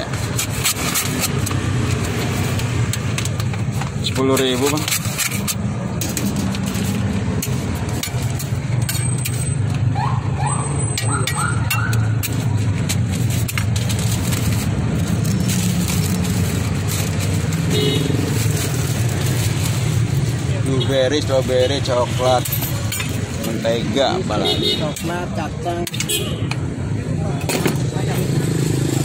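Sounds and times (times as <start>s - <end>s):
metal spatula scraping griddle: 0.0s - 9.9s, 10.7s - 20.5s.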